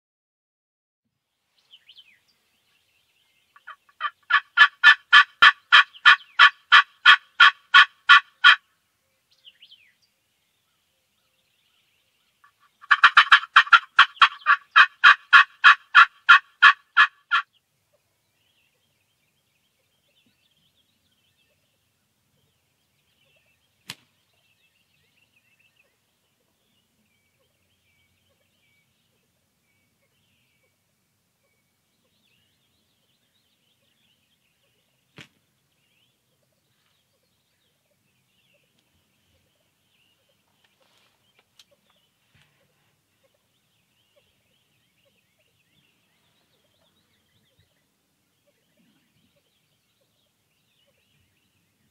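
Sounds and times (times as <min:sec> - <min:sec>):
turkey yelping: 0:03.6 - 0:08.6, 0:12.7 - 0:17.4.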